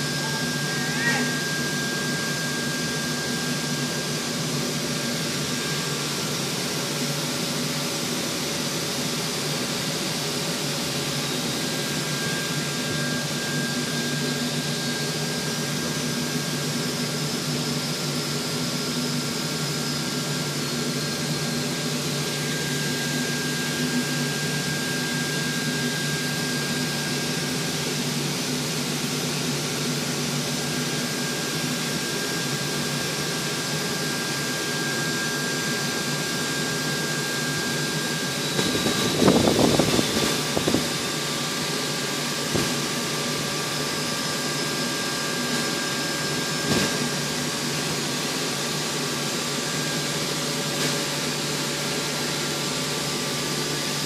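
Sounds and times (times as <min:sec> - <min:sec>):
high-pitched whine: 0:00.0 - 0:54.0
machinery hum and whir: 0:00.0 - 0:54.0.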